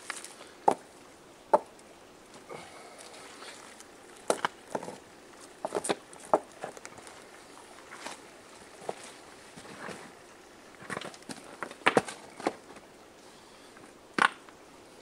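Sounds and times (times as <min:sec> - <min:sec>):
stones knocking against rock: 0:00.6 - 0:00.8, 0:01.5 - 0:01.7, 0:04.2 - 0:05.0, 0:05.6 - 0:06.9, 0:10.8 - 0:12.6, 0:14.2 - 0:14.5.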